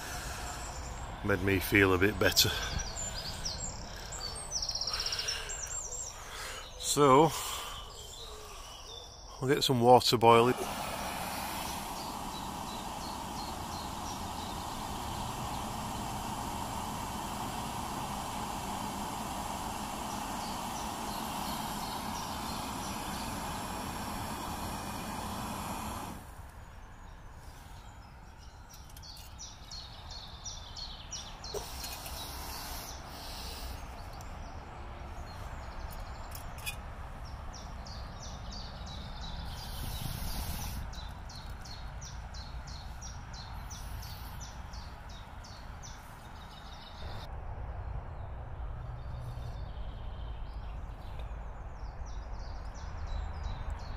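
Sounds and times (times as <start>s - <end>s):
gas stove burner hissing: 0.0s - 5.9s, 10.2s - 26.6s, 31.4s - 33.9s, 39.2s - 47.3s
birds chirping: 0.0s - 47.3s, 49.0s - 53.9s
low rumble of motorway traffic: 0.0s - 53.9s.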